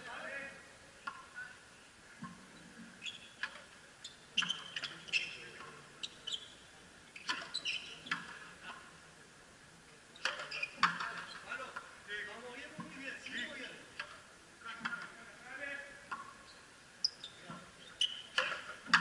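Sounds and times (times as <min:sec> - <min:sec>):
shoes squeaking on court: 0:02.4 - 0:08.4, 0:10.2 - 0:11.6, 0:16.1 - 0:19.0.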